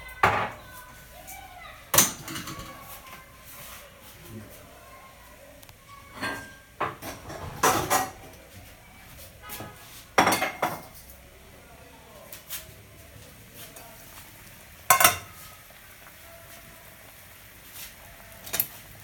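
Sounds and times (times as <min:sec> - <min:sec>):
pot boiling hiss: 0:00.0 - 0:11.5, 0:12.1 - 0:19.0
pots and utensils clattering: 0:01.9 - 0:03.7, 0:06.0 - 0:08.6, 0:09.4 - 0:11.2, 0:14.7 - 0:16.1, 0:17.7 - 0:19.0.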